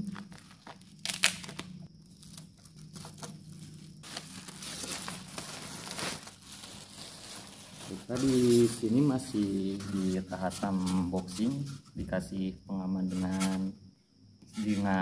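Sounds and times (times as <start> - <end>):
plastic wrap crinkling: 0.0 - 11.4.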